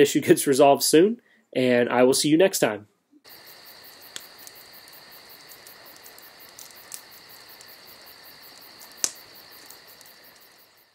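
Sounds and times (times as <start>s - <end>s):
crickets chirring: 3.2s - 10.9s
faint clicks: 4.1s - 10.7s.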